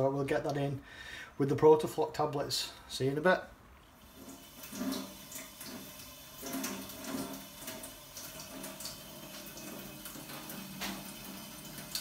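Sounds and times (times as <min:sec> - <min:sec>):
water splashing into steel sink: 0:04.0 - 0:12.0
liquid boiling with small pops: 0:10.2 - 0:11.2.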